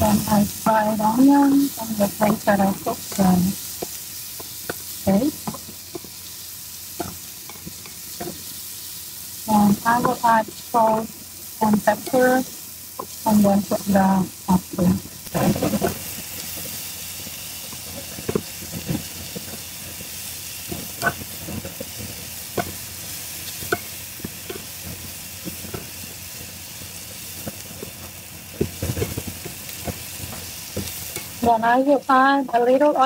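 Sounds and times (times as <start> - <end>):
vegetables sizzling in a frying pan: 0.0 - 33.0
spatula scraping a pan: 15.3 - 17.0, 17.6 - 31.5.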